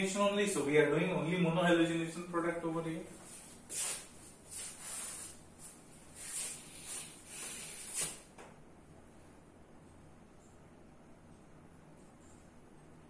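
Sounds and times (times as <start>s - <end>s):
soft scuffing footsteps: 3.0s - 8.5s.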